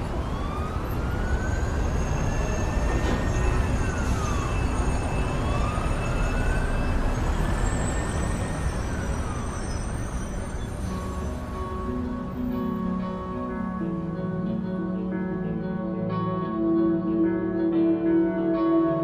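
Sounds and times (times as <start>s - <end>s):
siren wailing: 0.0s - 11.9s
city traffic rumble: 0.0s - 19.0s.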